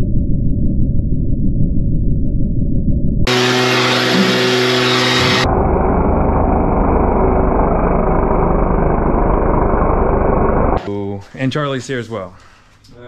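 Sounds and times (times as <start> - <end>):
vehicle engine running: 3.3 - 10.9.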